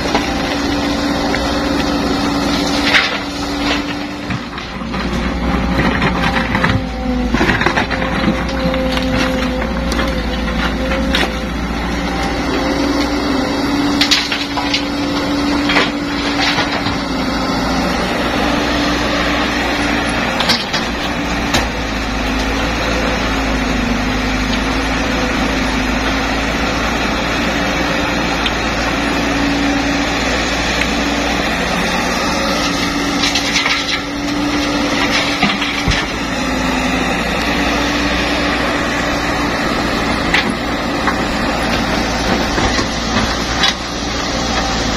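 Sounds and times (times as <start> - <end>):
excavator diesel engine: 0.0 - 44.9.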